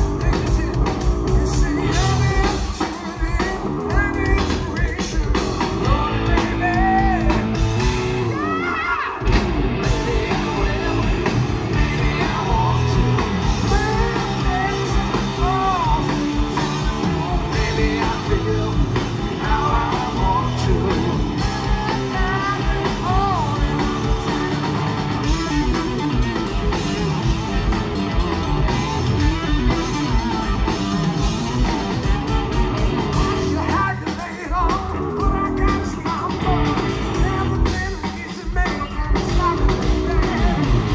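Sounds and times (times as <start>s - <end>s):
man singing: 0.0s - 26.2s, 33.1s - 40.9s
drum kit: 0.0s - 40.9s
electric bass: 0.0s - 40.9s
electric guitar: 0.0s - 40.9s.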